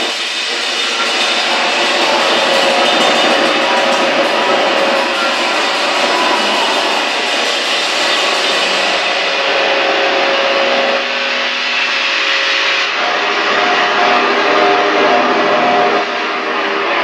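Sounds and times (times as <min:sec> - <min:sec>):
distorted electric guitar noise: 0:00.0 - 0:17.0.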